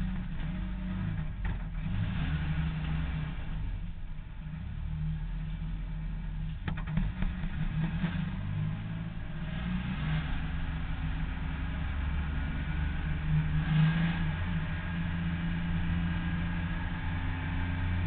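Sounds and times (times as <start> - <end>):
race car engine running: 0.0 - 18.0.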